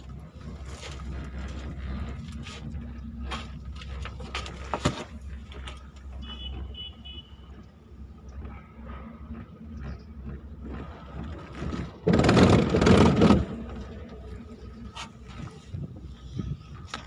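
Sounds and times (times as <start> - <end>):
gondola rumbling: 0.0 - 17.0
knocks and rattles: 7.5 - 14.6
wind on microphone: 10.2 - 17.0.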